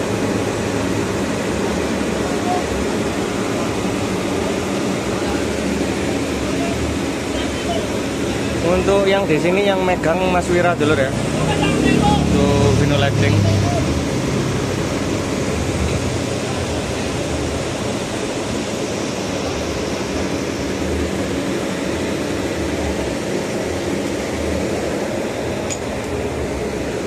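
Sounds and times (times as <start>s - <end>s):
generator running: 0.0s - 27.0s.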